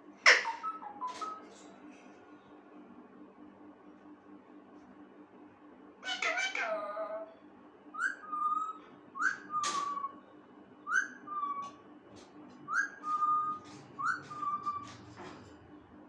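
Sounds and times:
parakeet whistling a ringtone: 0:08.0 - 0:10.2, 0:10.8 - 0:11.6, 0:12.7 - 0:15.0.

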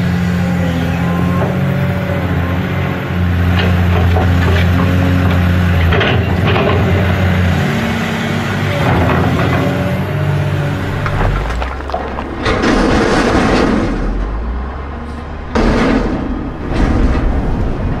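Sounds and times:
excavator and truck engines: 0:00.0 - 0:18.0
deep rumble: 0:10.5 - 0:18.0
crashing crumbling noise: 0:10.7 - 0:14.6.

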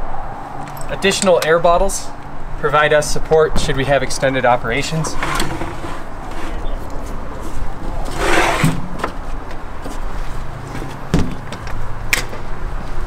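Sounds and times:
gear scraping and sliding: 0:04.9 - 0:10.9
dull thump: 0:11.1 - 0:11.5.

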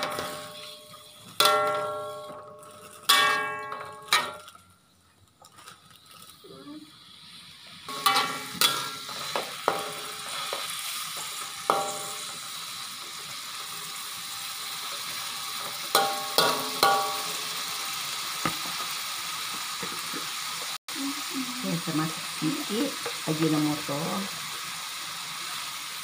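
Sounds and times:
mushrooms sizzling in oil: 0:00.0 - 0:03.1, 0:06.4 - 0:26.0
spatula knocking on wok: 0:16.0 - 0:17.3.

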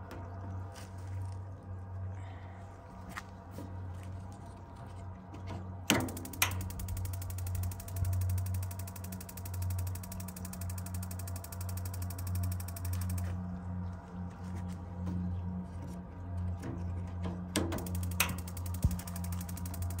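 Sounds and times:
steady low hum: 0:00.0 - 0:20.0
igniter sparking ticks: 0:05.9 - 0:13.3, 0:17.8 - 0:20.0
sharp clicks: 0:05.9 - 0:13.4, 0:17.7 - 0:20.0.

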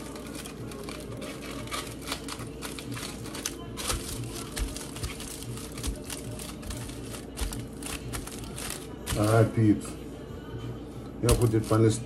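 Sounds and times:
aluminium foil crinkling: 0:00.0 - 0:09.6, 0:11.2 - 0:12.0.

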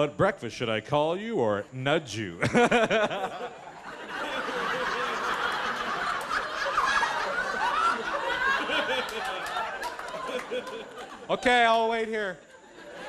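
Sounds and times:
audience laughing: 0:02.3 - 0:11.8, 0:12.4 - 0:13.0.

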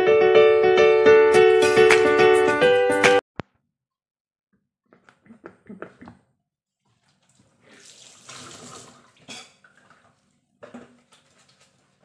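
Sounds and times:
tap water running into sink: 0:06.9 - 0:11.8.

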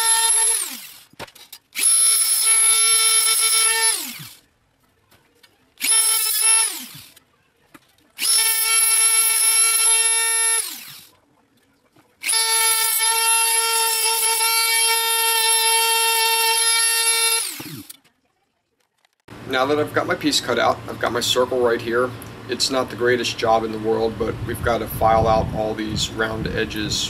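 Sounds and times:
rotary tool sanding metal whine: 0:00.0 - 0:01.2, 0:01.8 - 0:04.4, 0:05.8 - 0:07.2, 0:08.2 - 0:11.1, 0:12.2 - 0:18.0.

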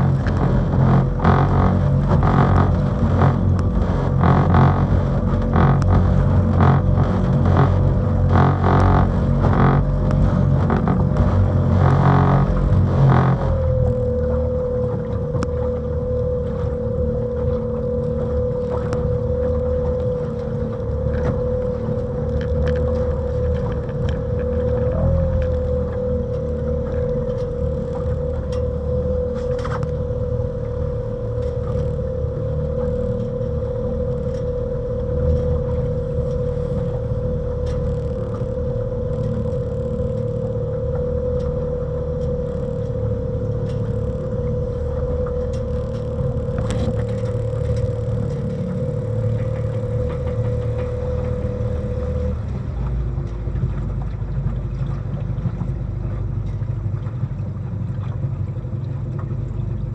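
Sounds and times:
heavy low rumble: 0:00.0 - 0:59.9
steady hum at one pitch: 0:00.0 - 0:59.9.

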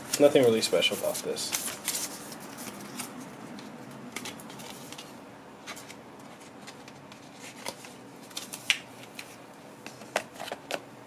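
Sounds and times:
paper and cardboard packaging rustling: 0:00.0 - 0:10.8.

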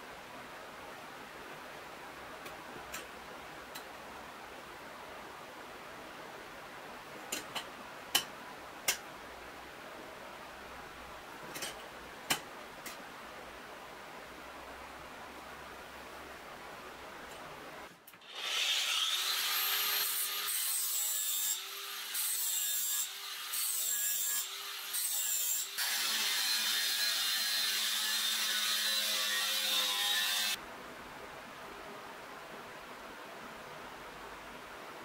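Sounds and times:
angle grinder cutting metal: 0:18.2 - 0:30.6.

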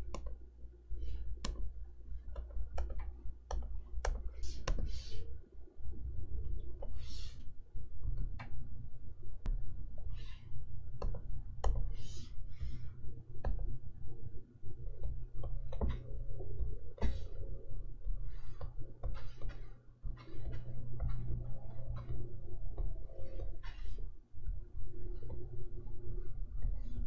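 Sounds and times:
low steady hum: 0:00.0 - 0:27.0
stylus tapping on screen: 0:01.1 - 0:05.1.

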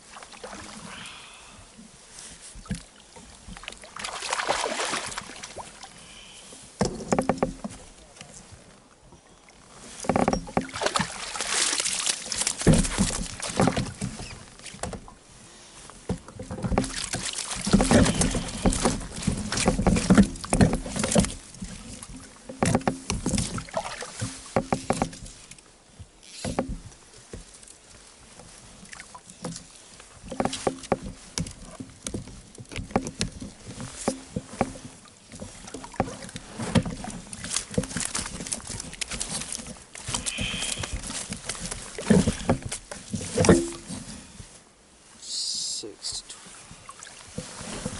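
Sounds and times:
water splashing against boat: 0:00.0 - 0:47.9
fishing gear knocks and rustles: 0:06.7 - 0:08.8, 0:09.5 - 0:15.2, 0:15.9 - 0:44.6, 0:47.1 - 0:47.9.

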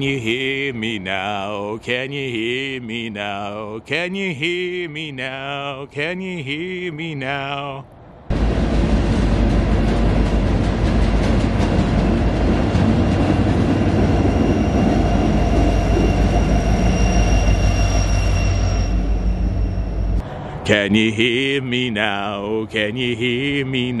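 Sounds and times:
freight train rumbling past: 0:00.0 - 0:24.0
wheels squealing on rail: 0:11.0 - 0:20.8.

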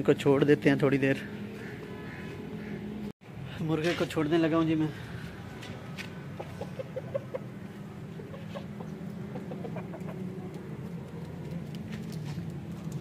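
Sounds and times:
chickens clucking: 0:06.1 - 0:10.9.

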